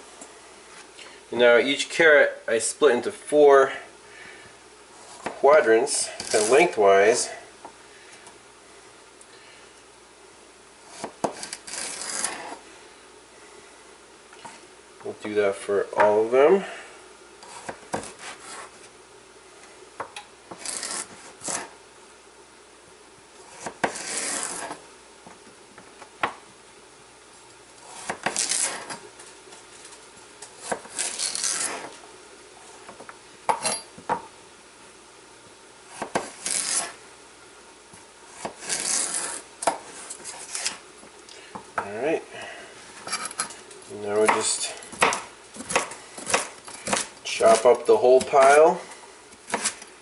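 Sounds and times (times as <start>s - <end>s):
knife cutting carrots: 6.0s - 6.8s, 10.9s - 12.6s, 20.5s - 21.7s, 38.3s - 40.8s, 44.2s - 48.6s, 49.3s - 49.9s.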